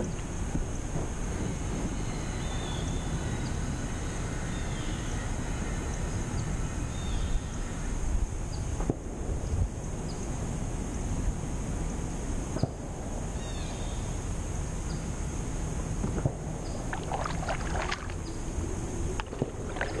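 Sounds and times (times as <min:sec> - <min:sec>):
wind rumble on microphone: 0:00.0 - 0:20.0
paddle splashes and drips: 0:16.8 - 0:20.0.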